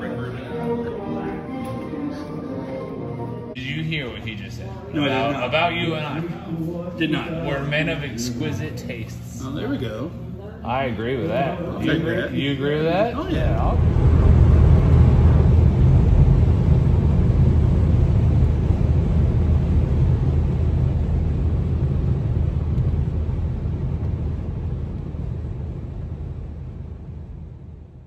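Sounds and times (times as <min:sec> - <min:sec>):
car road noise rumble: 0:13.4 - 0:27.8.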